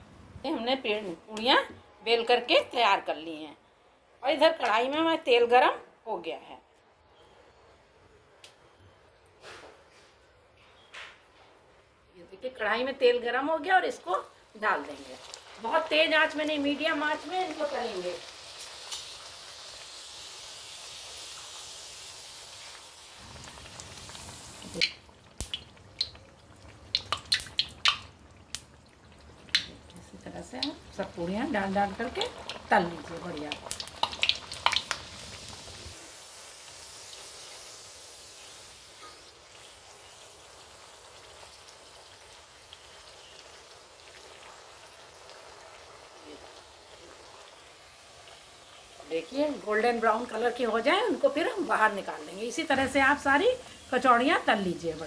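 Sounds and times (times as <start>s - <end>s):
oil sizzling deep-frying: 12.4s - 55.0s
small crackles: 14.8s - 20.2s, 22.6s - 36.0s
sharp pops and clicks: 24.7s - 28.8s, 29.4s - 30.8s, 33.5s - 35.1s.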